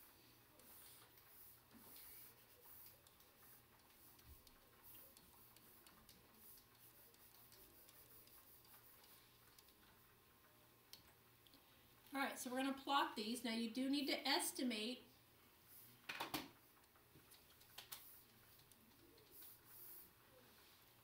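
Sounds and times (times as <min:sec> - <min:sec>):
stylus clicks and taps: 0:02.8 - 0:09.9.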